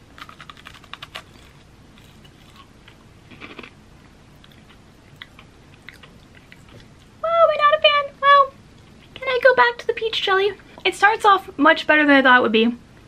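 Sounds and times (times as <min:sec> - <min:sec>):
cracker crunching: 0:00.0 - 0:07.2.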